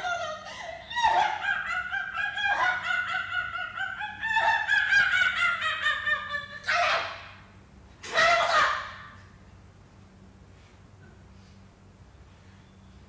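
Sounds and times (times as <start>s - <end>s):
people making wailing cries: 0.0s - 7.4s, 8.0s - 9.1s.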